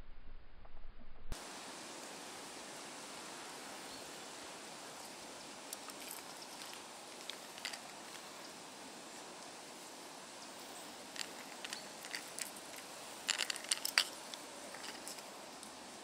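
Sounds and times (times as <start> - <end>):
faint outdoor hiss: 1.3 - 16.0
plastic lures clicking: 11.2 - 15.2.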